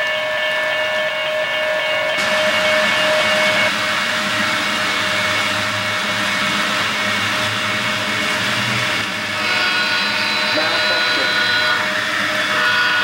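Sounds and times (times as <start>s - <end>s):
model train whirring: 0.0s - 13.0s
held tone: 9.4s - 13.0s.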